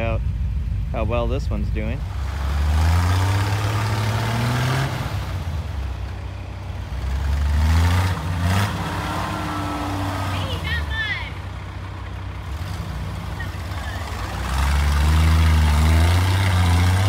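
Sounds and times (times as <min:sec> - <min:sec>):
engine revving hard: 0:02.0 - 0:05.8, 0:07.0 - 0:11.4, 0:12.5 - 0:17.0.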